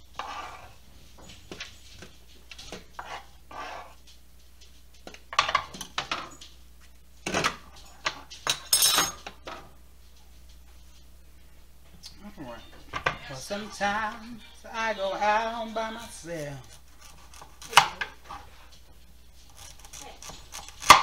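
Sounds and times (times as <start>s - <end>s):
knife scraping cutting board: 0.0s - 0.8s, 1.6s - 4.1s, 16.6s - 18.7s, 19.3s - 21.0s.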